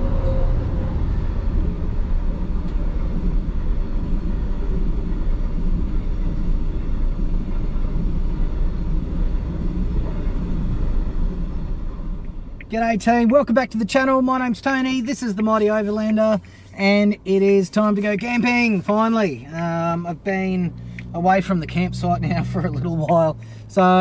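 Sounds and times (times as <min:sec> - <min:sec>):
freight train rumbling past: 0:00.0 - 0:12.6.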